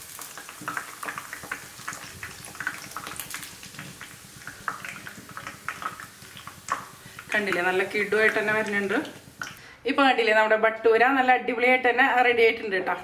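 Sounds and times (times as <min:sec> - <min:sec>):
hot oil sizzling: 0:00.0 - 0:09.6
crackles and pops in oil: 0:00.1 - 0:07.6, 0:08.2 - 0:09.6.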